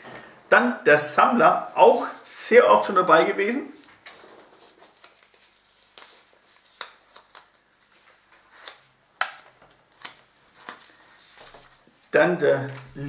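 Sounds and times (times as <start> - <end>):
paper rustling and crinkling: 3.8 - 13.0
paper snapping: 6.8 - 7.6.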